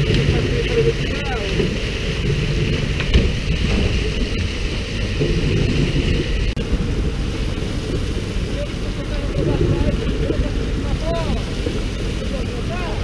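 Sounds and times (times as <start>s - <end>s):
boat engine rumble: 0.0s - 13.0s
water splashing: 0.0s - 13.0s
sharp knocks: 2.9s - 4.2s.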